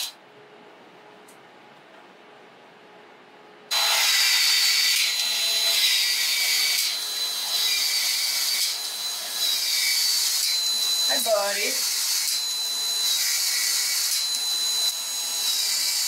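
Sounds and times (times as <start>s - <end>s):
power tool whine: 3.7s - 16.0s.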